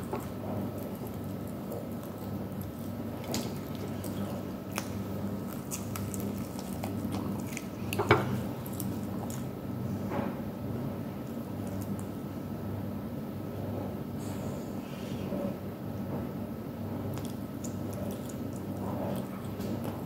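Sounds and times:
lip smacks: 0.0 - 9.5, 17.1 - 20.0
chewing chicken wings: 0.0 - 9.6, 17.1 - 20.0.

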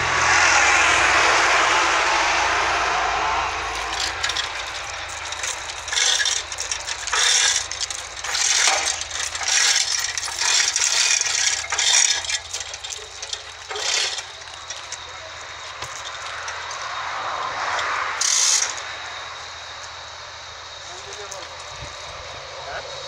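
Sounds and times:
heavy steel chains rattling: 3.6 - 17.1, 17.7 - 18.9.

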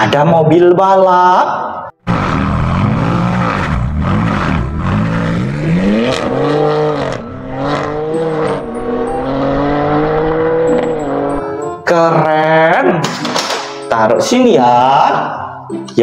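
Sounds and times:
car accelerating hard: 2.0 - 11.6
car engine revving: 2.0 - 11.6.

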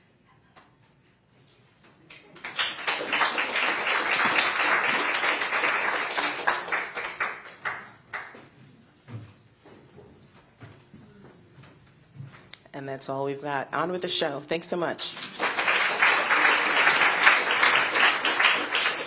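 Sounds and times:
audience applauding: 2.1 - 8.4, 15.1 - 19.0.

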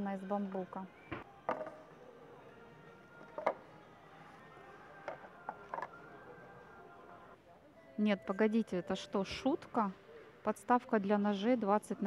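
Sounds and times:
tablet knocking on stand: 1.5 - 1.8.

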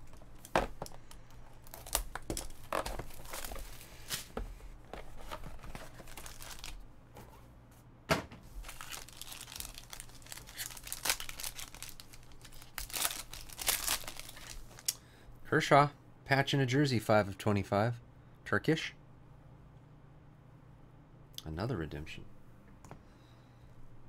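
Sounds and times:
foil wrapper crinkling and tearing: 1.6 - 4.3, 5.5 - 6.8, 8.6 - 15.0.

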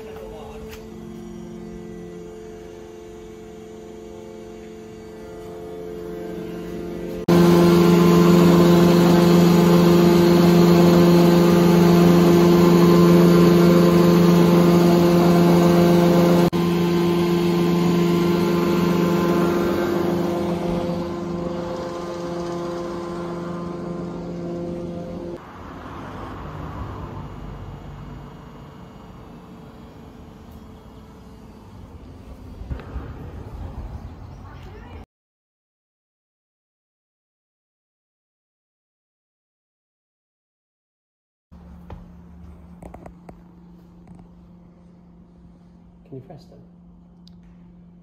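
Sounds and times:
winding engine humming: 0.0 - 33.5.

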